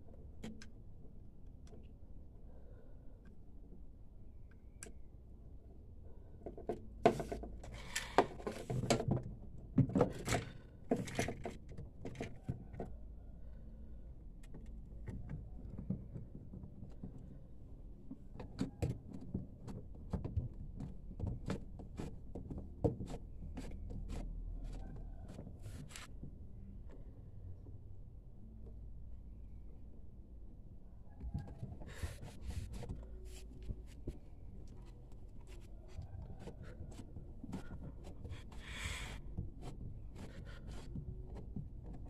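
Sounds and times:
plastic parts clicking and rattling: 6.6s - 13.0s
low steady hum: 22.2s - 42.0s.

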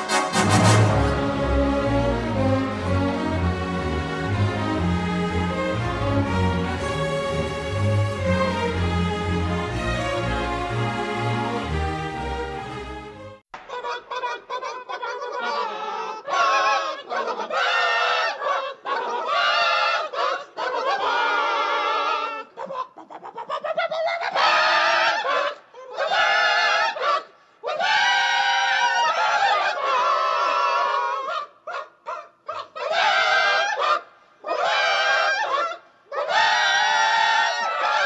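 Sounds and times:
hens squawking and cackling: 13.8s - 27.2s, 32.5s - 38.0s.

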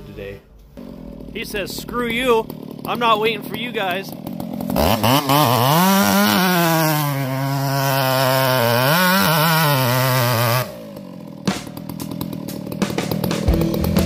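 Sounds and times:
chainsaw cutting: 0.0s - 14.0s.

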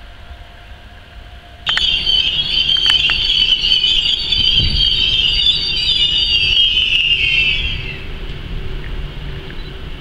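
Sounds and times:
sharp clicks: 1.7s - 4.2s
train wheels squealing: 1.7s - 8.5s.

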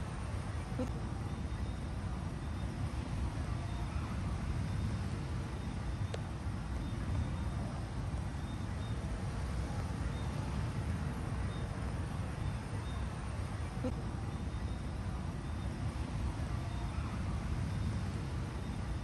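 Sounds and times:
faint click: 6.1s - 6.3s.

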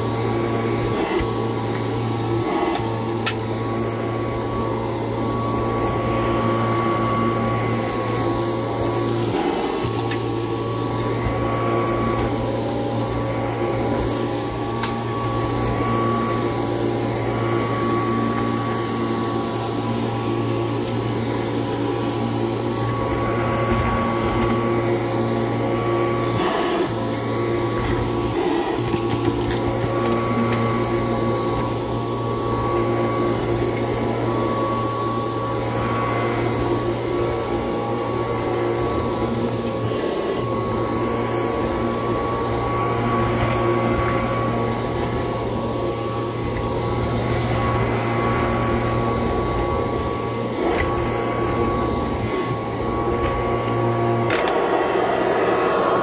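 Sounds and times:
vacuum cleaner running: 0.0s - 56.0s.

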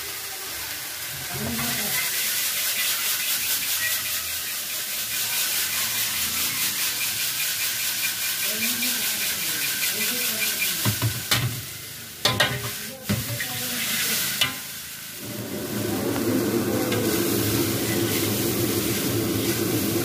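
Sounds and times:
noodles sizzling in a wok: 0.0s - 20.0s
metal utensil stirring: 1.5s - 11.5s, 12.2s - 14.7s
low roar of gas burner: 4.6s - 20.0s
metal knocking on pan: 10.8s - 11.6s, 12.2s - 13.4s.

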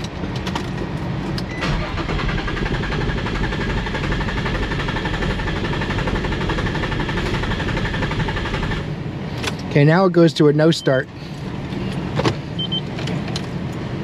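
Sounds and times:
starter motor cranking engine: 1.6s - 8.8s.

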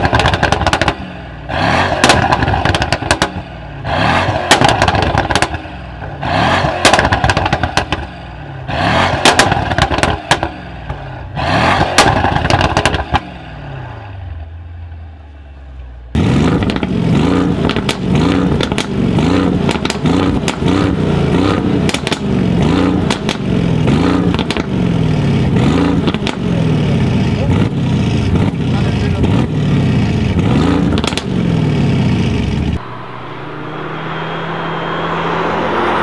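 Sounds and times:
exhaust pops and crackles: 0.0s - 1.1s, 2.0s - 3.4s, 4.4s - 5.6s, 6.8s - 8.1s, 9.2s - 11.0s, 11.8s - 13.2s, 16.6s - 16.9s, 17.6s - 19.0s, 19.6s - 20.8s, 21.8s - 22.3s, 22.9s - 23.5s, 24.2s - 24.8s, 26.0s - 26.6s, 30.8s - 31.4s
car engine revving: 0.0s - 14.2s, 16.2s - 36.0s
van engine running loudly: 0.0s - 36.0s.

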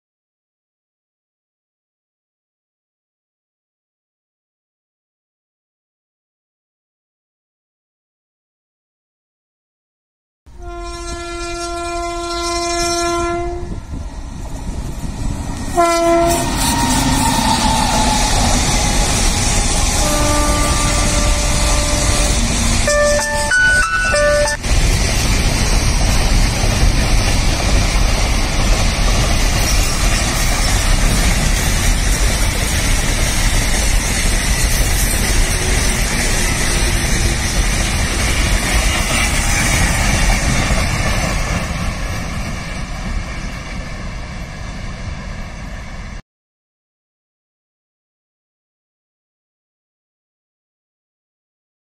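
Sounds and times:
train wheels clattering on track: 13.9s - 44.7s.

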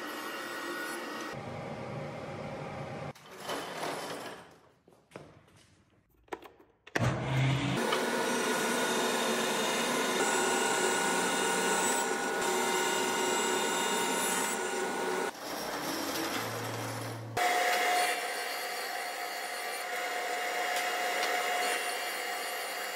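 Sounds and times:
table saw running: 7.0s - 22.9s
thickness planer whining: 7.0s - 22.9s.

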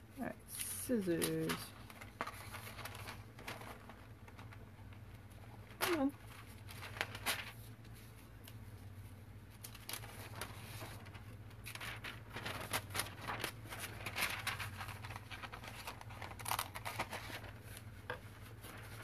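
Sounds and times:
paper rustling: 1.0s - 19.0s.

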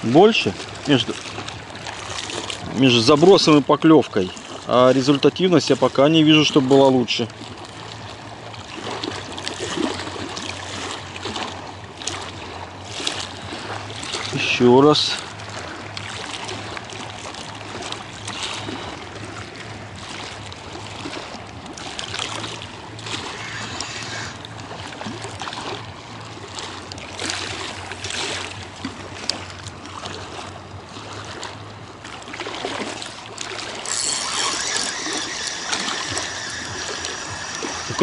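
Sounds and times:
waves lapping against concrete: 0.0s - 38.0s
fishing reel winding: 23.0s - 24.4s, 33.6s - 38.0s.

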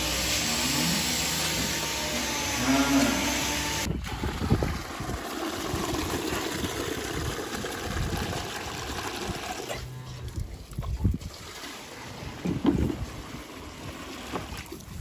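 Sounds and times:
milk pouring into a plastic bucket: 4.0s - 9.8s.

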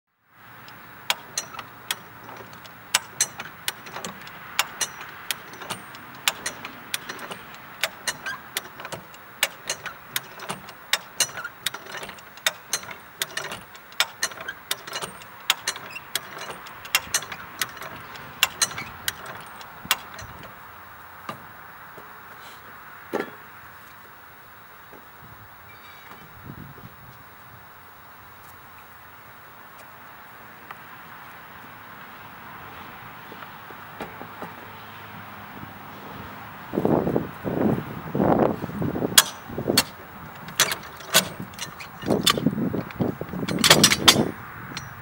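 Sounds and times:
lifting jack clicking: 0.6s - 20.6s, 39.1s - 45.0s.

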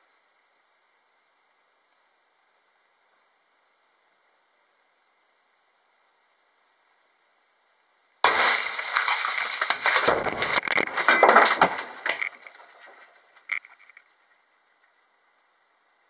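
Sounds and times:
rock and debris clattering: 8.2s - 14.8s.

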